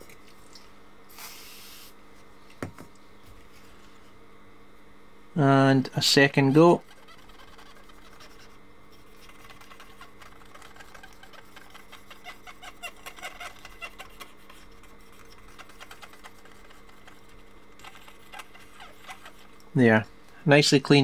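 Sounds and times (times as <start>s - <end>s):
steady background hum: 0.0s - 21.0s
cotton swab scrubbing circuit board: 6.6s - 19.6s.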